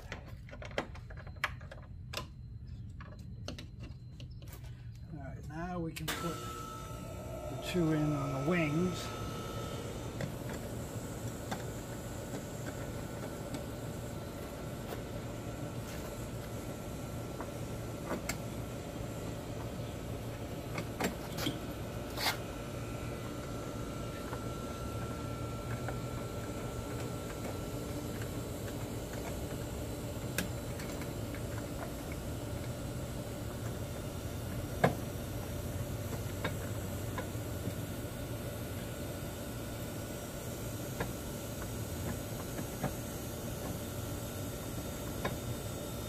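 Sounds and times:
parts clicking and tapping: 0.0s - 5.0s
steady background hum: 0.0s - 46.0s.

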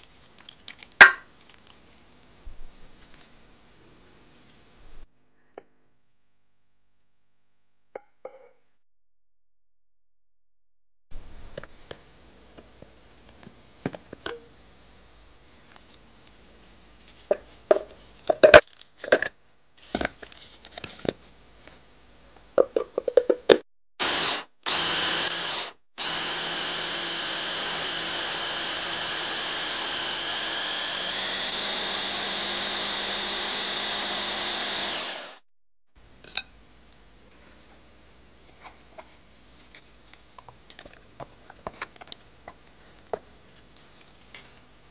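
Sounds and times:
hand blender chopping food: 24.0s - 35.3s.

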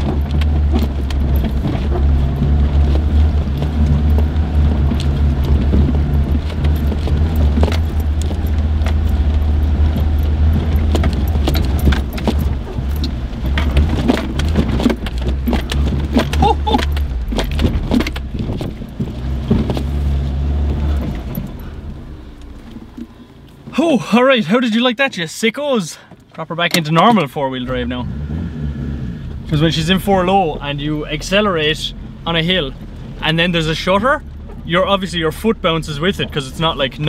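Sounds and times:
car engine droning: 0.0s - 37.0s
vehicle clinking and rattling: 0.0s - 37.0s.

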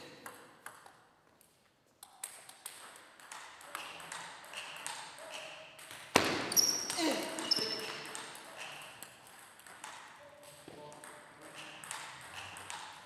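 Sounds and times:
table tennis ball clicking: 2.0s - 6.0s, 10.9s - 13.0s.

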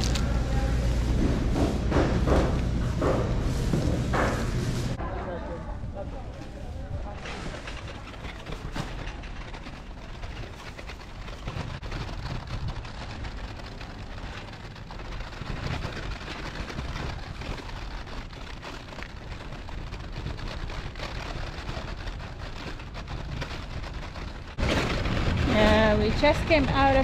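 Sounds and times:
plastic bag crinkling: 0.0s - 0.4s, 7.5s - 27.0s
traffic rumble: 0.0s - 27.0s
wind: 0.0s - 27.0s.

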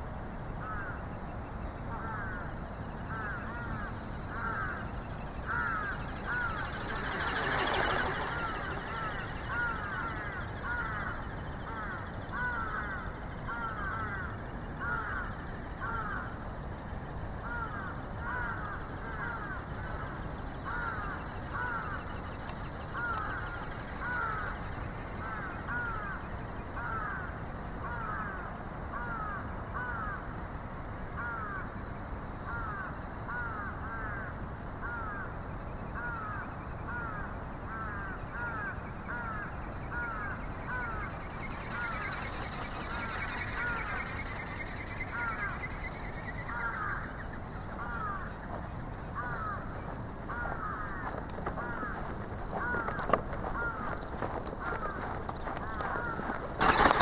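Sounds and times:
high thin whine: 3.8s - 13.4s
wings flapping with swishing stroke: 5.2s - 12.1s, 40.7s - 57.0s.

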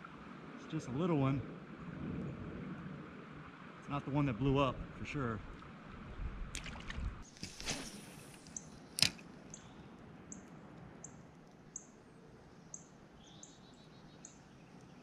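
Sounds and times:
flowing creek: 0.0s - 15.0s
sharp click: 7.4s - 9.2s
small bird chirping: 12.7s - 15.0s.

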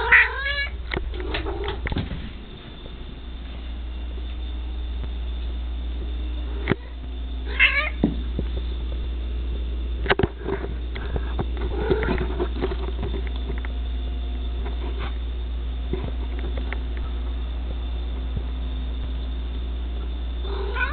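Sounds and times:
cat meowing: 0.0s - 0.7s, 7.5s - 8.0s, 20.5s - 20.9s
steady low hum: 0.0s - 20.9s.

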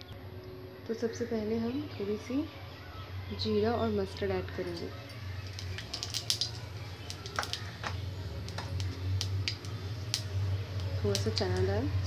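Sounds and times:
low steady hum: 0.0s - 12.0s
seeds crackling in hot oil: 4.3s - 12.0s.

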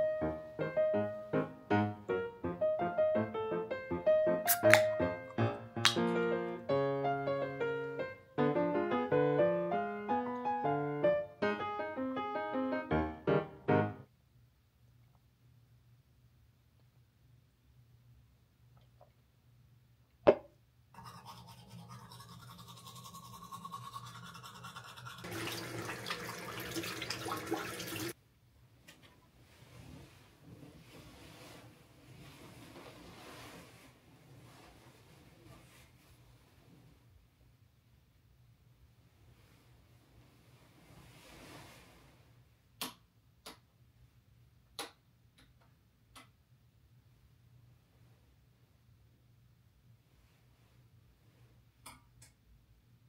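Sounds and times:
soft rustle: 29.0s - 37.4s, 39.2s - 42.6s.

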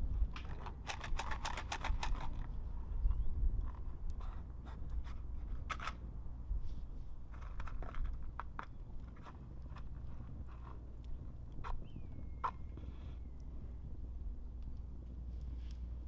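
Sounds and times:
low steady rumble: 0.0s - 16.0s
campfire crackling: 8.7s - 16.0s.

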